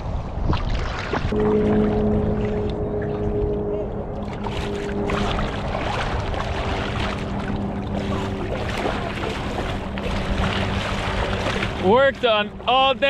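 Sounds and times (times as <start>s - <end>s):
shallow water splashing: 0.3s - 13.0s
steady low hum: 1.3s - 13.0s.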